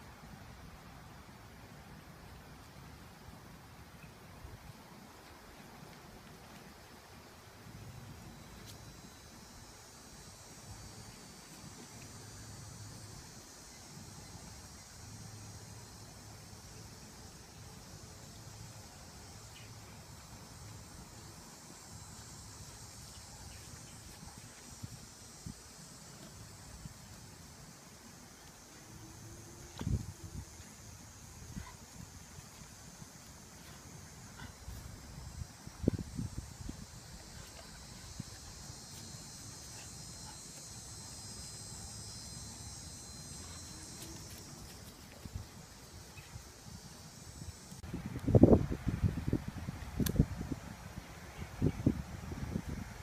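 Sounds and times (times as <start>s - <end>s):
high insect drone: 0.0s - 53.0s
low wind rumble: 46.4s - 53.0s.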